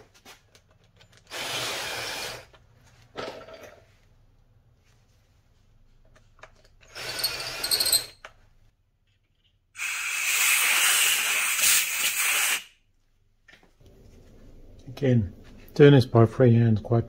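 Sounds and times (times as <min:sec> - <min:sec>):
cordless drill whining: 0:01.3 - 0:02.5
air blow gun hissing: 0:09.8 - 0:12.7.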